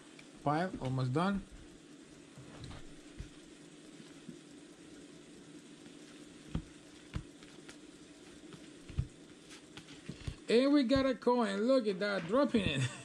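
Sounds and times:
cards rustling: 6.5s - 10.5s
cards tapping down: 8.4s - 10.4s.

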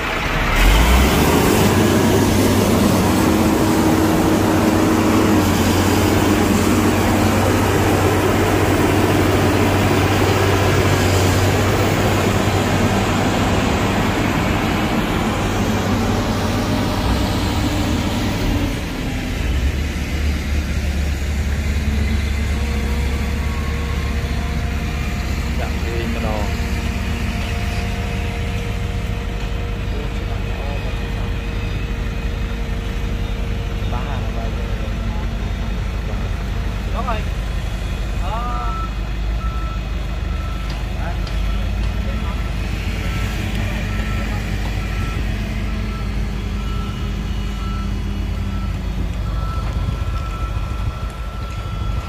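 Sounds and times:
heavy diesel engine rumbling: 0.0s - 52.0s.

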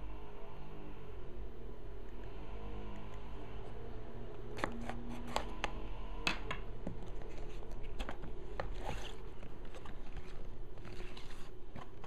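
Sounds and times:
steady low hum: 0.0s - 12.0s
knife cutting tape on box: 4.6s - 5.5s.

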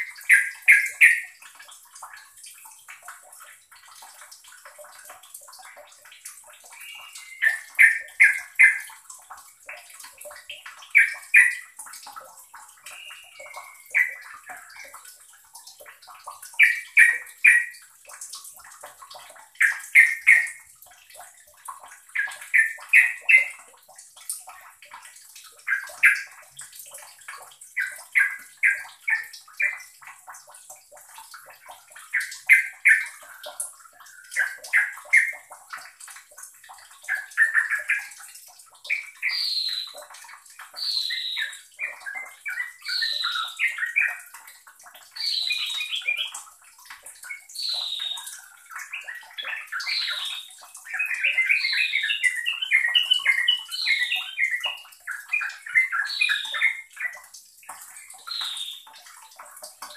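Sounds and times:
bird singing chattering phrases: 0.2s - 1.4s, 6.7s - 8.9s, 16.5s - 17.7s, 22.2s - 23.6s, 40.8s - 44.3s, 45.2s - 46.4s, 47.3s - 57.2s.

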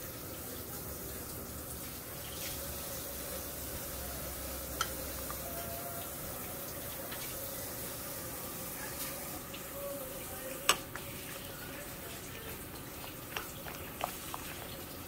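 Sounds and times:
spoon stirring in glass bowl: 4.6s - 6.1s, 9.9s - 15.0s.

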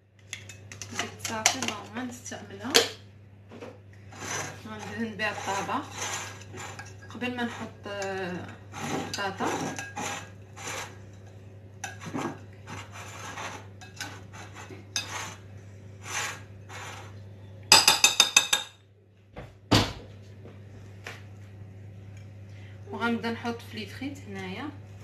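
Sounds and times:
utensil scraping glass dish: 4.1s - 11.0s, 11.8s - 15.4s, 16.0s - 17.1s.

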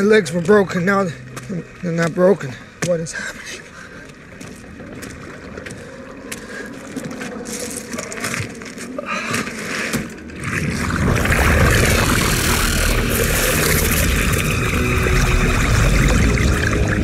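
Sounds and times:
deep rumble: 10.4s - 17.0s
loud dense noise: 11.2s - 17.0s.

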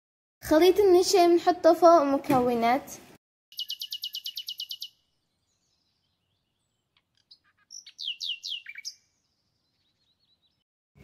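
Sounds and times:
falling whistled bird notes: 3.5s - 6.6s, 7.3s - 10.6s
small bird chirping: 3.5s - 10.6s.

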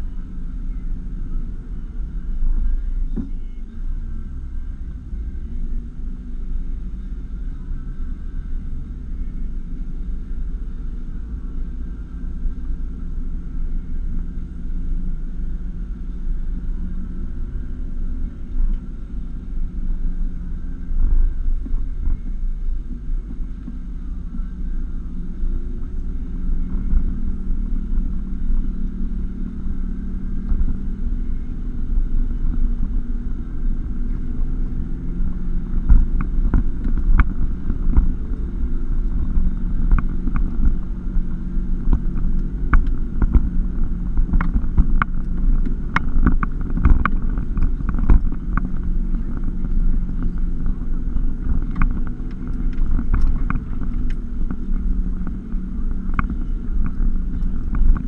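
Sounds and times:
engine hum and road rumble: 0.0s - 58.0s
clicks and knocks over rough ground: 41.8s - 58.0s.

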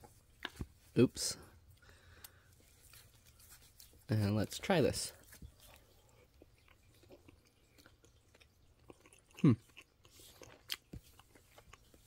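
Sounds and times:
mouth smacking while eating: 5.2s - 12.0s
person humming mm: 9.4s - 9.6s.

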